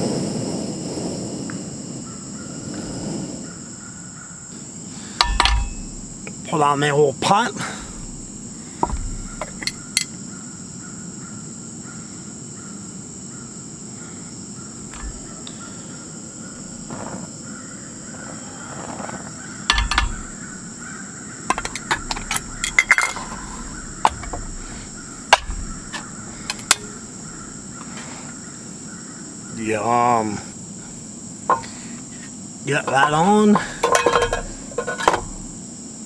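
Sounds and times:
high insect drone: 0.0 - 36.0
metal pan and can clinking: 5.2 - 6.2, 19.7 - 20.5, 21.5 - 27.6, 32.9 - 35.6.

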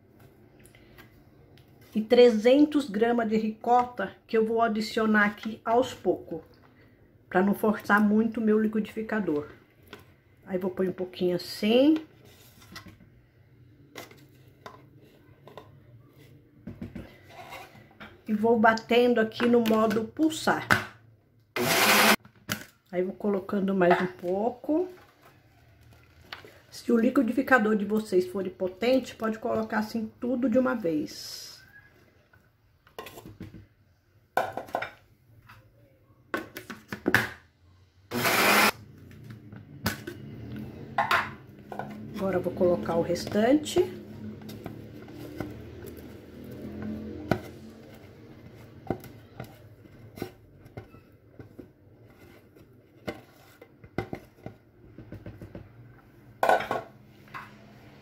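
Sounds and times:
blender pulse: 21.6 - 22.2, 38.1 - 38.8.

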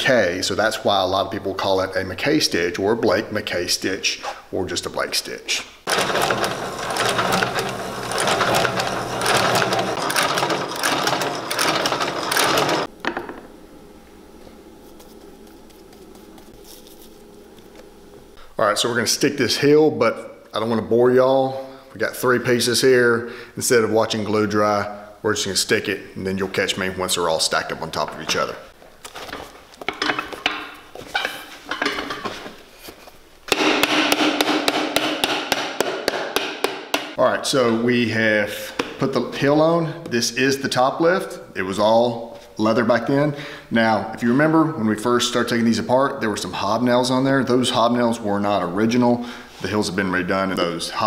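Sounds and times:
stitching machine clattering: 5.9 - 12.9.

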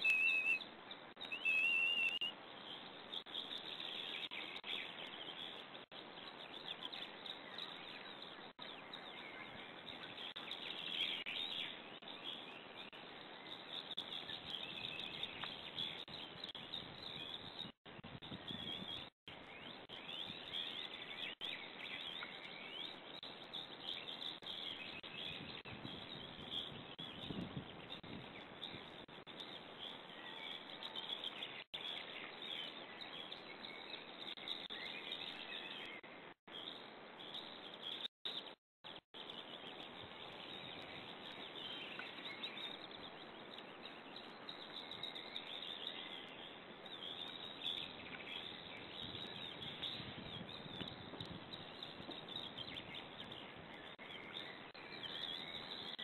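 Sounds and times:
bird chirps: 0.0 - 56.0
faint outdoor hiss: 0.0 - 56.0.

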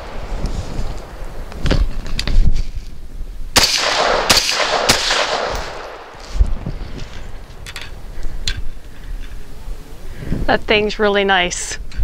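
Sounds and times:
rifle shots with rolling echo: 3.5 - 6.5.

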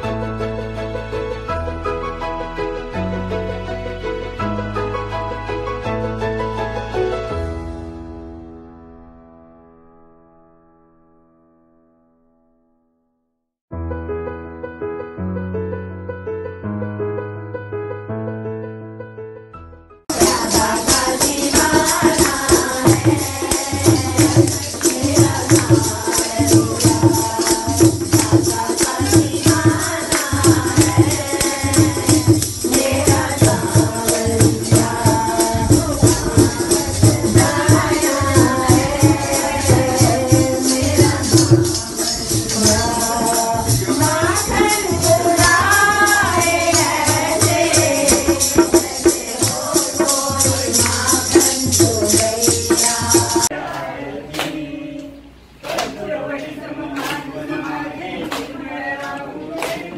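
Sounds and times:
jingling percussion: 20.1 - 53.5
steady drum beat: 20.1 - 53.5
devotional song through microphone: 20.1 - 59.9.

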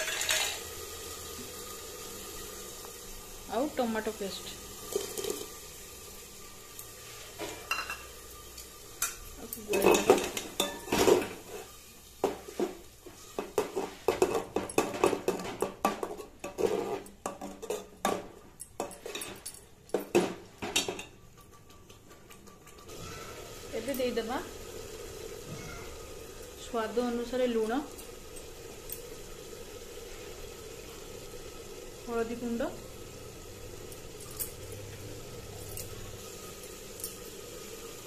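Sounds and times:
metal spoon scraping a pot: 0.0 - 0.6, 16.0 - 18.0
masala sizzling in oil: 0.0 - 38.0.

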